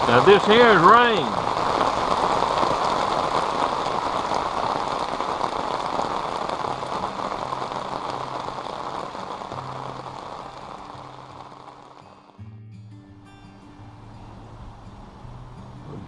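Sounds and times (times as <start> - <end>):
heavy rain on river and boat: 0.0 - 12.3, 13.6 - 16.0
faint background music: 10.7 - 16.0.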